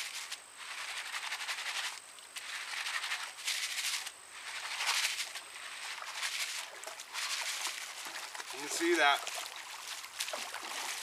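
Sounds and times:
grit rattling in colander: 0.0s - 9.2s
water sloshing: 4.5s - 11.0s.

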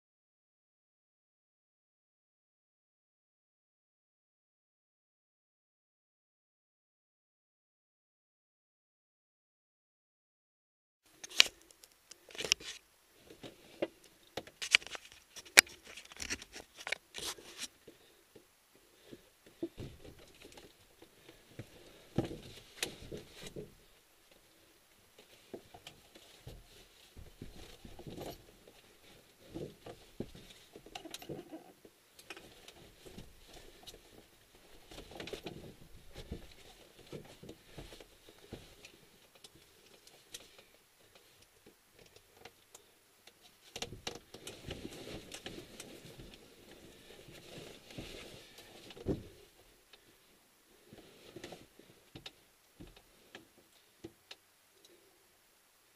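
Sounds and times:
rustling in a cockpit: 12.2s - 54.2s.

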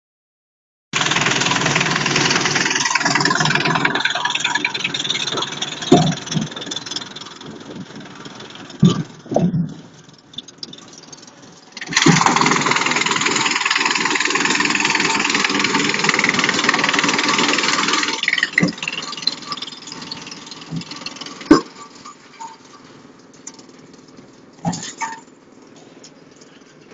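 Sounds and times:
wood chipper chipping branches: 1.0s - 9.4s, 10.5s - 25.3s.

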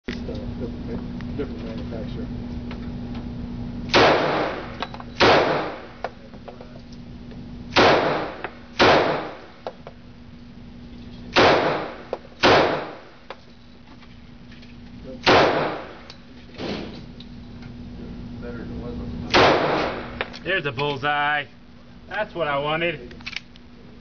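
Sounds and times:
pistol shots echoing: 3.9s - 6.0s, 7.7s - 9.6s, 11.4s - 13.2s, 15.2s - 16.1s, 19.3s - 20.3s.

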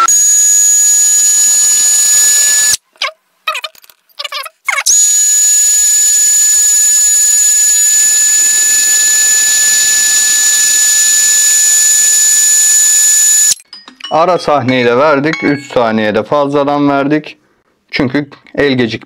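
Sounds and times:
cordless drill high whine: 0.0s - 2.8s, 4.9s - 13.6s.

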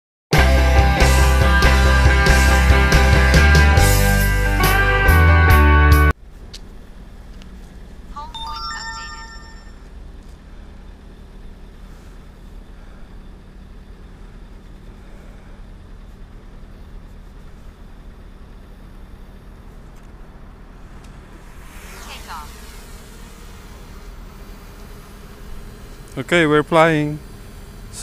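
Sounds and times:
low background rumble and hum: 6.2s - 28.0s
chime of steady tones: 8.2s - 9.9s.

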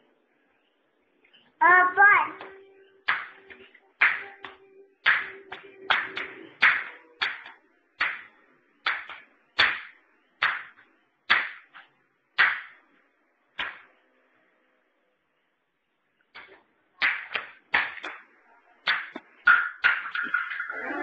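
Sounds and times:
sharp hand claps: 2.4s - 12.8s, 13.6s - 13.9s, 16.3s - 20.6s.

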